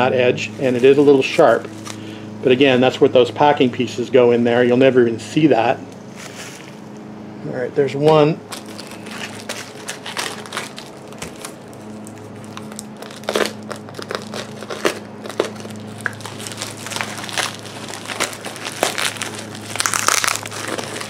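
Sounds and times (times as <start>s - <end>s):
steady low hum: 0.0s - 21.0s
plastic wrapping crinkling and tearing: 8.5s - 21.0s.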